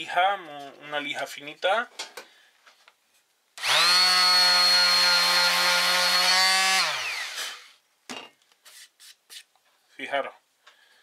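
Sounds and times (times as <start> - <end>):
electric sander motor whining: 3.6 - 7.7.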